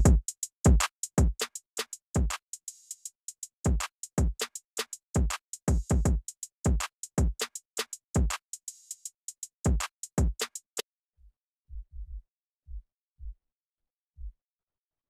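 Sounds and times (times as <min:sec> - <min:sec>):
boom bap drum beat: 0:00.0 - 0:10.8.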